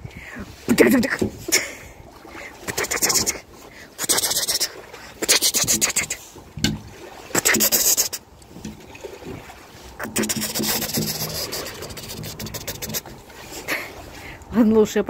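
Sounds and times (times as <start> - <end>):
scraping against glass: 10.0 - 13.1.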